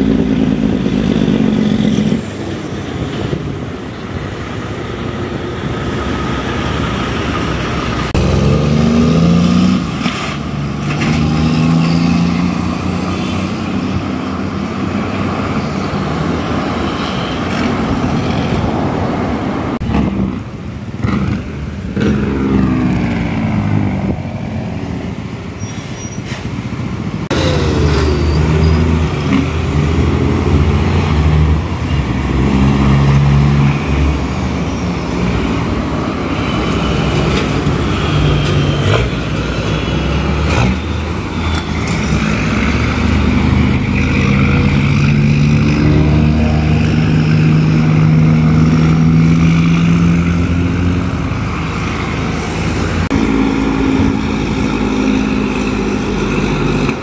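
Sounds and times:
diesel truck engine braking: 0.0s - 20.4s, 21.0s - 57.0s.

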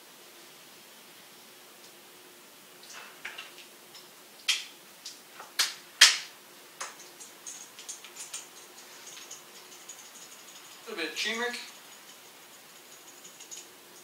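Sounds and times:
spice jar shaken: 7.0s - 10.9s, 11.6s - 14.0s.

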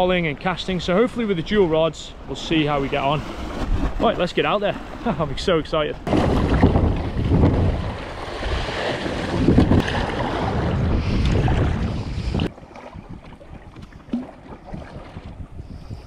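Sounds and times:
water splashing against kayak hull: 2.2s - 16.0s
wind buffeting microphone: 6.0s - 16.0s.

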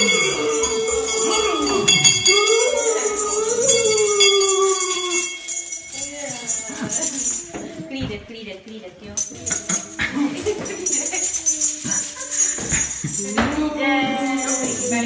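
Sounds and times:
bells jingling: 0.0s - 8.1s, 9.0s - 15.0s.

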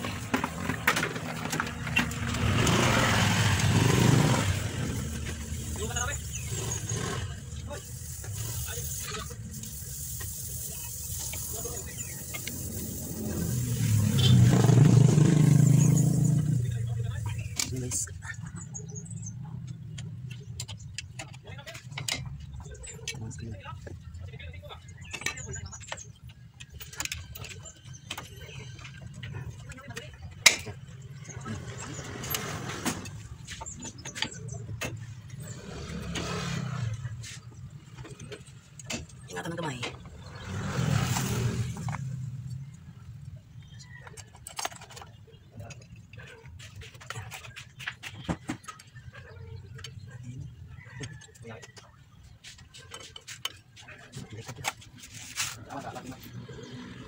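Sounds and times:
vehicle engine humming: 0.0s - 44.1s.

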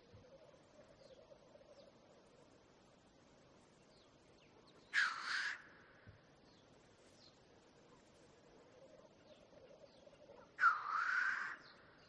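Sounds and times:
small birds chirping: 0.0s - 5.2s, 6.0s - 12.0s
grouse hissing display call: 4.9s - 6.0s, 10.2s - 11.7s.

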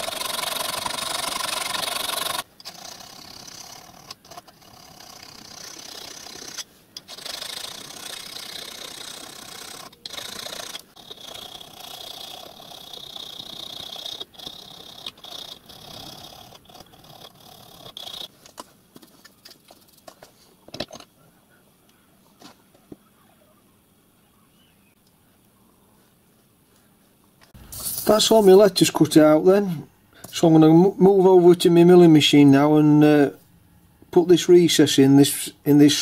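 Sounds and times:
hand file rasping on metal: 0.0s - 18.3s.

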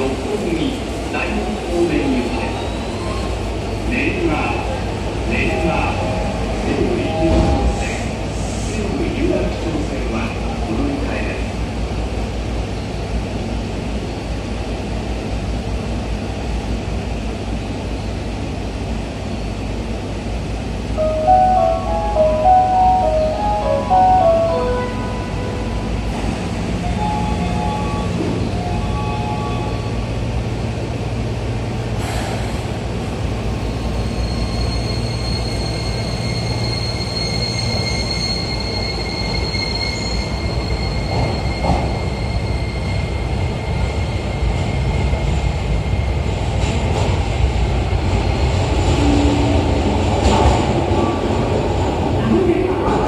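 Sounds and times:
train drive whine: 11.7s - 53.0s.

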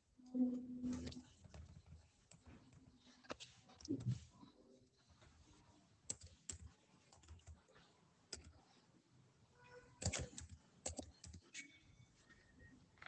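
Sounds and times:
computer keyboard keystrokes: 6.1s - 7.6s, 8.3s - 8.6s, 10.0s - 11.4s.

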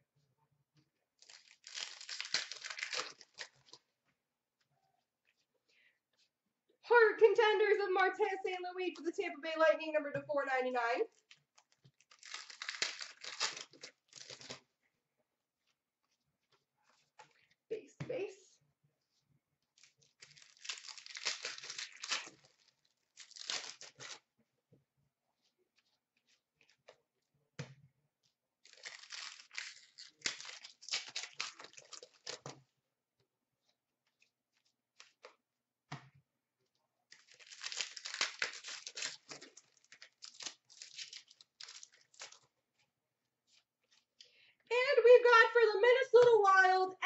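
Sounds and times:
card pack wrappers tearing and crinkling: 1.2s - 3.8s, 11.6s - 14.6s, 19.8s - 24.2s, 28.6s - 32.6s, 37.1s - 42.5s.

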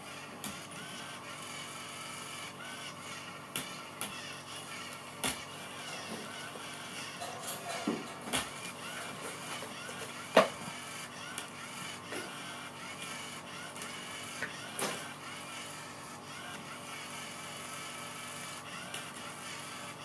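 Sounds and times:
small electric motor whirring: 0.0s - 20.0s.

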